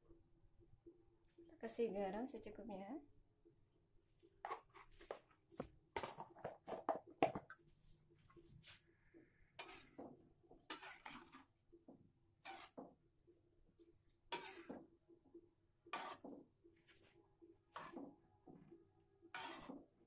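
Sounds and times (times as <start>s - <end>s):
utensil clinking and scraping a pan: 9.6s - 11.5s, 12.4s - 12.8s, 14.3s - 14.8s, 15.9s - 17.1s, 17.7s - 18.1s, 19.3s - 20.0s.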